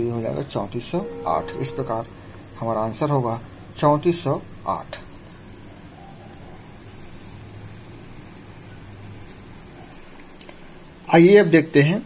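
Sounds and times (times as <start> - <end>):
insect trilling: 0.6 - 7.5.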